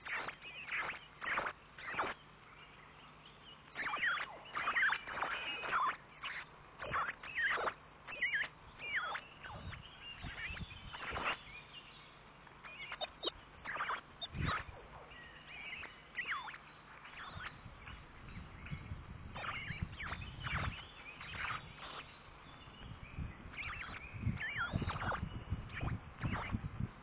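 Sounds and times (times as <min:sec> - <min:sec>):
birds whistling chirps: 0:00.0 - 0:26.7
faint low hum: 0:00.0 - 0:27.0.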